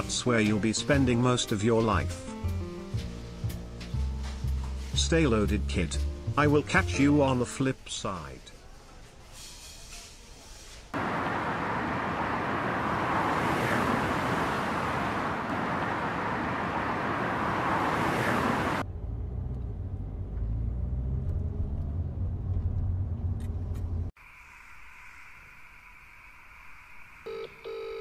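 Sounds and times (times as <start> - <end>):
truck engine and tyre noise: 10.9 - 27.3
low engine drone in cab: 11.0 - 13.2.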